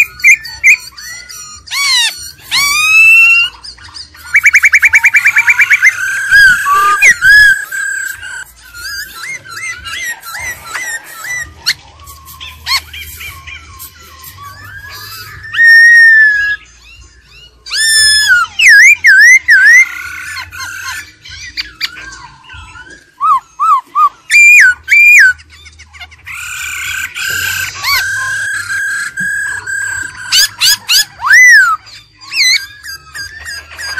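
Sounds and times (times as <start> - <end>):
bird singing whistled song: 0.0 - 25.6, 26.3 - 33.9.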